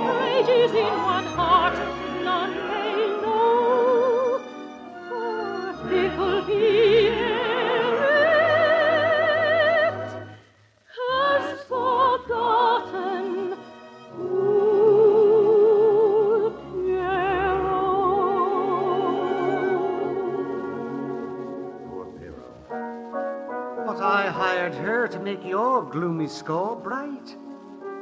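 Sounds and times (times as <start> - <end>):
soprano singing: 0.0 - 22.1, 23.8 - 27.8
orchestra playing: 16.4 - 27.4.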